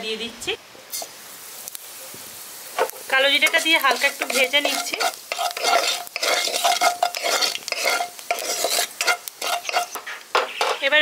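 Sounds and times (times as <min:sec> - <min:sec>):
seeds sizzling in hot oil: 0:00.0 - 0:11.0
wooden spatula scraping a pan: 0:02.8 - 0:10.9.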